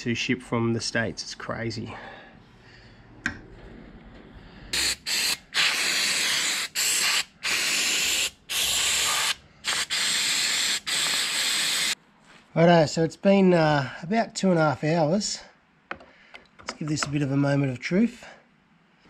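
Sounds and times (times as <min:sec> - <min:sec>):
spray can hissing bursts: 0:04.8 - 0:12.0.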